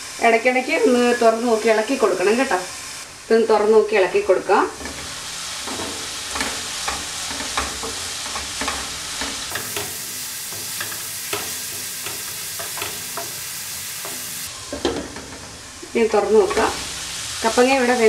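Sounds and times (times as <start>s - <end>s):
food sizzling in a pan: 0.0s - 18.0s
spatula scraping and tapping pan: 4.8s - 15.5s.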